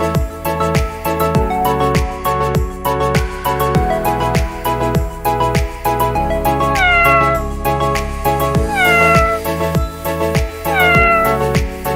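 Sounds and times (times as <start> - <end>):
background music with steady beat: 0.0 - 11.9
cat meowing: 6.7 - 7.4, 8.7 - 9.4, 10.7 - 11.5.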